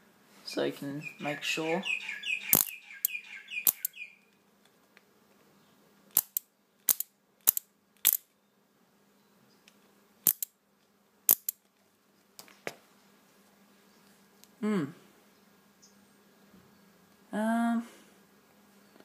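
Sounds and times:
faint electrical hum: 0.0s - 19.0s
sharp electrical snaps: 2.4s - 4.0s, 6.1s - 8.3s, 10.2s - 10.6s, 11.3s - 11.6s.

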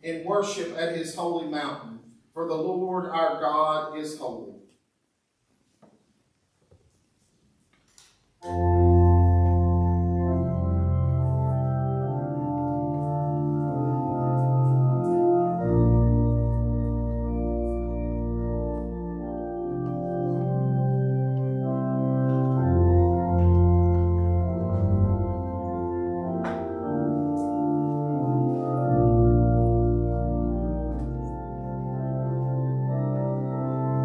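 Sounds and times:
church organ playing chords: 8.4s - 34.0s.

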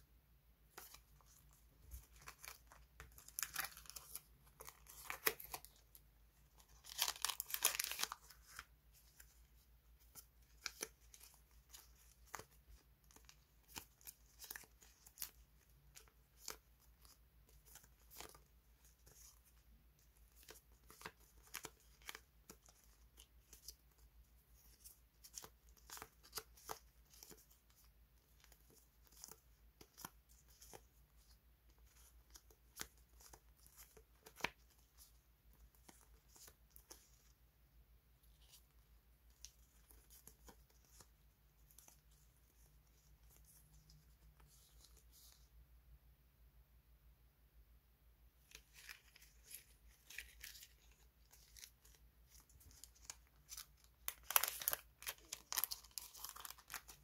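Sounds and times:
sticker flakes crinkling: 48.5s - 57.0s.

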